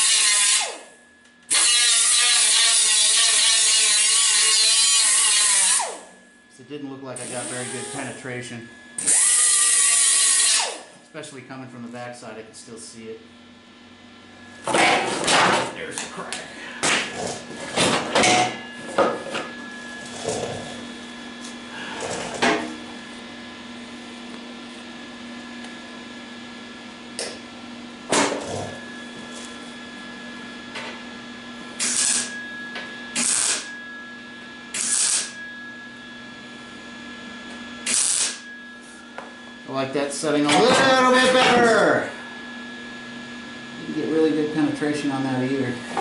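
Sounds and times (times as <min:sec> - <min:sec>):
welding arc crackle: 0:00.0 - 0:00.7, 0:01.5 - 0:05.9, 0:31.8 - 0:32.4, 0:33.2 - 0:33.7, 0:34.7 - 0:35.4, 0:37.8 - 0:38.4
welder hum: 0:00.0 - 0:46.0.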